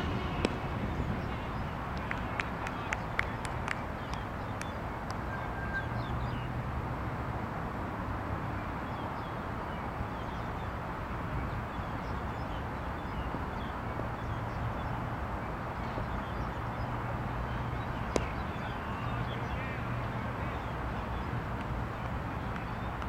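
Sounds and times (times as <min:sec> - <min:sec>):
low hum: 0:00.0 - 0:01.8.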